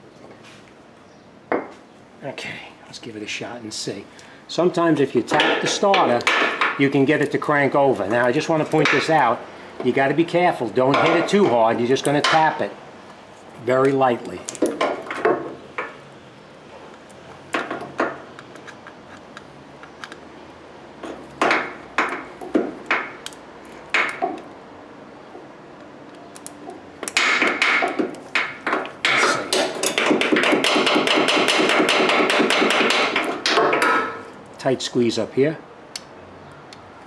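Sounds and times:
hammer tapping metal: 0:27.0 - 0:34.3.

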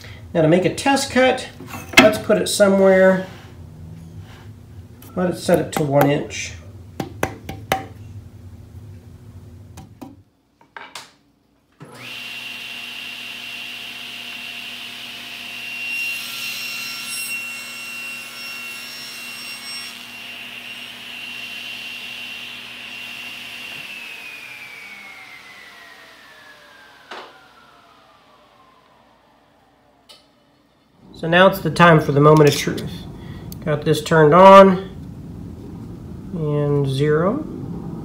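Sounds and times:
table saw whining: 0:11.8 - 0:33.7
saw cutting a board: 0:11.9 - 0:28.1.

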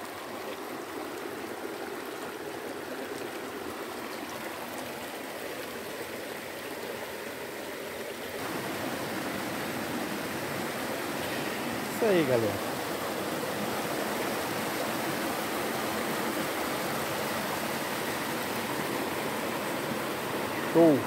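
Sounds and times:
stream water rushing over rocks: 0:00.0 - 0:21.0.

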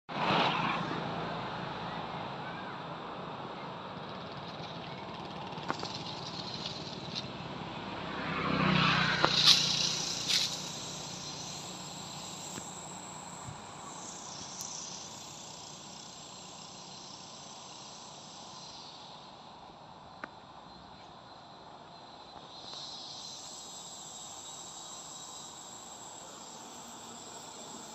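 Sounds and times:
outdoor background hiss: 0:01.2 - 0:27.9
engine passing: 0:03.8 - 0:19.6, 0:22.5 - 0:27.9.

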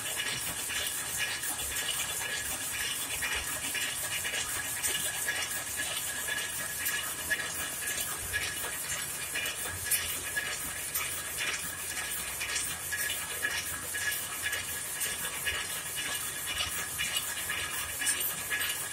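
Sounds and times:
loom mechanical clatter: 0:00.0 - 0:13.0.

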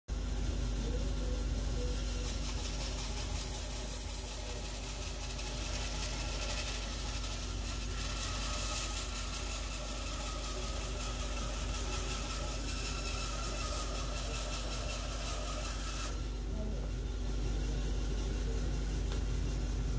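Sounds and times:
bandsaw cutting wood: 0:02.7 - 0:16.6.

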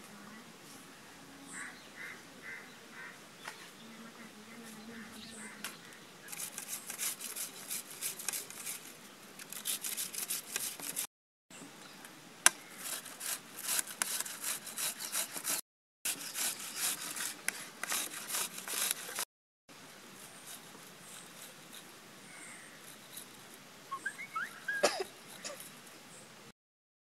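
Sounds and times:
grater rasping: 0:06.3 - 0:08.8, 0:09.4 - 0:11.1, 0:12.8 - 0:19.2.

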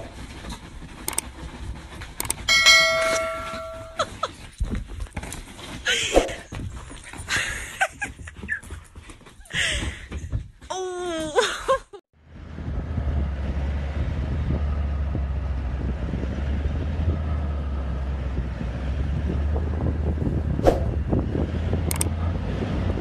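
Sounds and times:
vehicle driving on dirt track: 0:00.0 - 0:05.8, 0:12.2 - 0:23.0
wind noise on microphone: 0:12.4 - 0:23.0.

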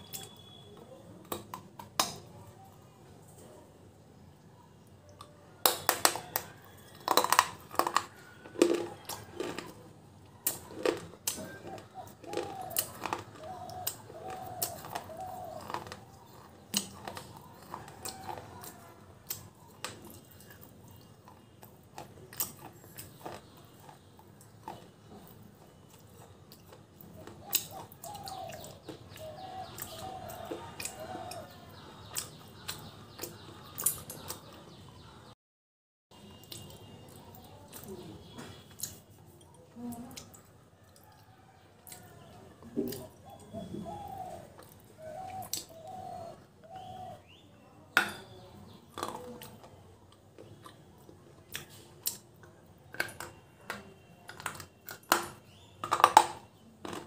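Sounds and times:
crunching bites and chewing: 0:05.2 - 0:34.5.

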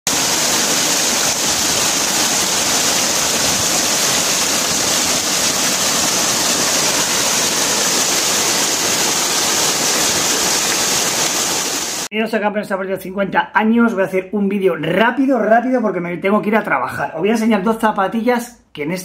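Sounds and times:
waterfall pouring onto rocks: 0:00.1 - 0:12.1.

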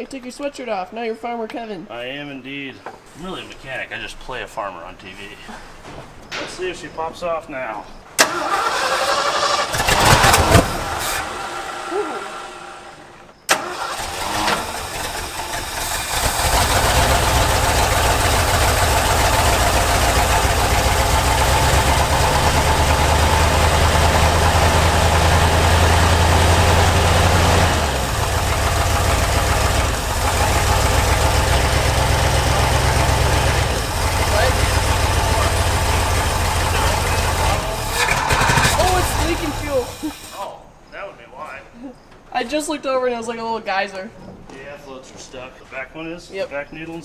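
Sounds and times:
truck engine cranking and running: 0:08.2 - 0:40.4.

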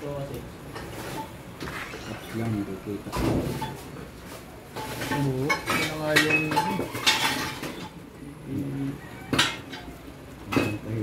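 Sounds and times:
low voices talking: 0:08.0 - 0:09.3.

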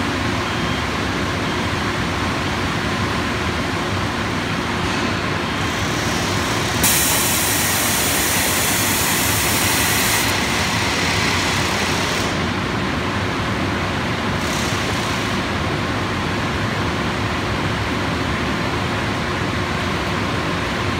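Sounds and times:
loud hiss: 0:05.9 - 0:10.6.

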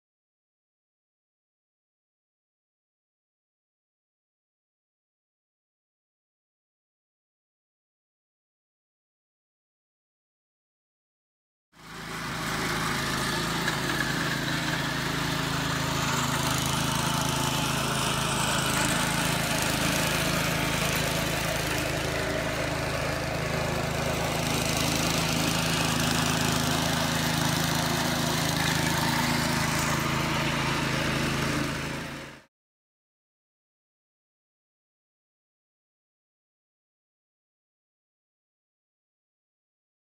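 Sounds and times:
engine running: 0:11.8 - 0:32.4.

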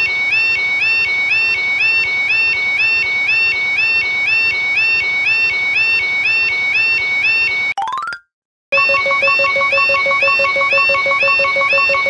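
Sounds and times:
electronic two-tone warble alarm: 0:00.0 - 0:07.7, 0:08.8 - 0:12.0.

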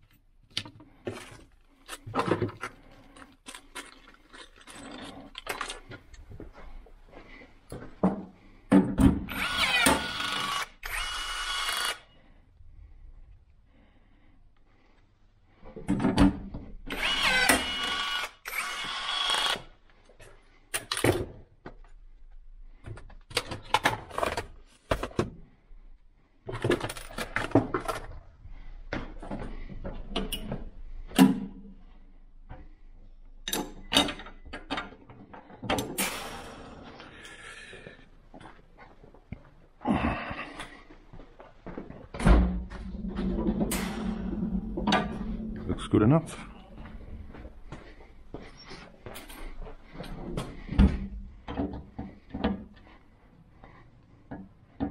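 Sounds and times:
cordless drill driving screws: 0:09.3 - 0:12.1, 0:16.9 - 0:19.7.

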